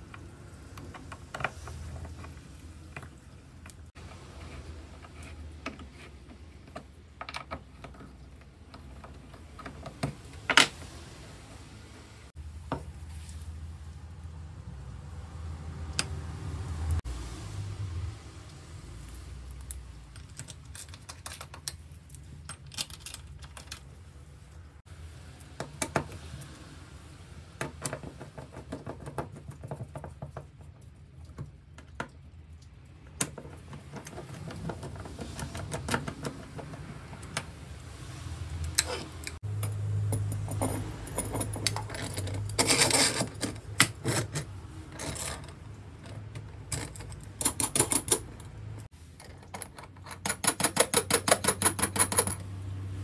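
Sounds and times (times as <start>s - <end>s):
tools clicking and knocking: 0.1s - 10.8s, 19.6s - 23.9s, 33.1s - 37.5s, 38.7s - 48.6s, 49.2s - 52.5s.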